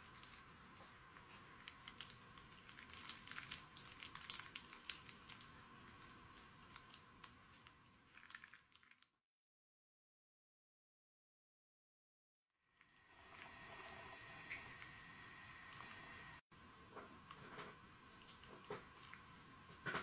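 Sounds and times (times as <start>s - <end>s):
faint crackling and ticking: 0.0s - 9.1s
steady hiss: 12.8s - 17.4s.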